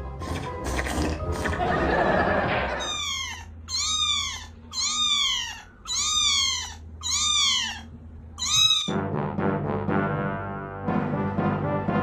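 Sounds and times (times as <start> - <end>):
kitten meowing: 2.8 - 9.0.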